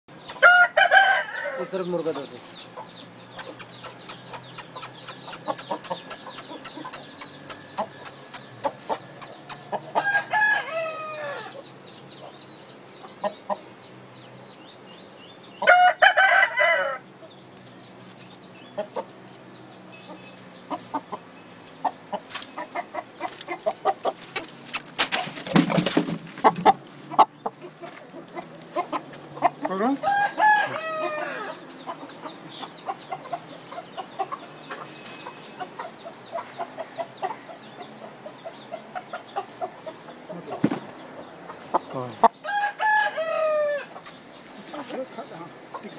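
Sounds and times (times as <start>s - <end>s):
rooster crowing: 0.4s - 1.8s, 10.0s - 11.6s, 15.6s - 17.1s, 30.0s - 31.6s, 42.4s - 43.9s
loud scuffling: 24.1s - 28.1s
short sharp clicks: 24.4s - 25.2s.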